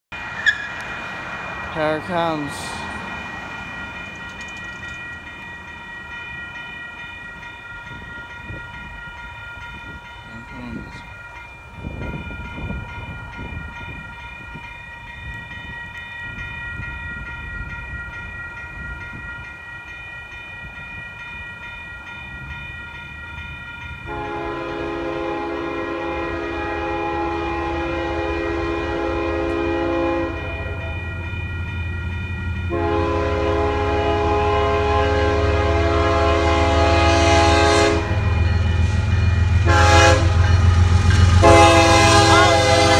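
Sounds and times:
railroad crossing bell ringing: 0:00.1 - 0:42.9
locomotive air horn: 0:24.1 - 0:30.9, 0:32.7 - 0:38.3, 0:39.6 - 0:40.5, 0:41.3 - 0:42.9.

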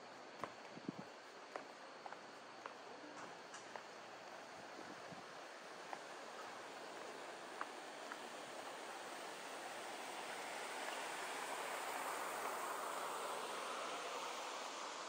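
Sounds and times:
steady rushing noise: 0:03.9 - 0:15.0.

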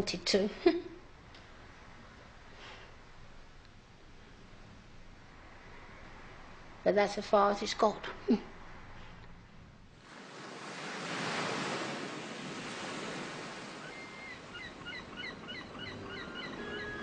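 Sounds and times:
sea surf washing onto beach: 0:10.0 - 0:14.9
short bird calls: 0:13.8 - 0:17.0.

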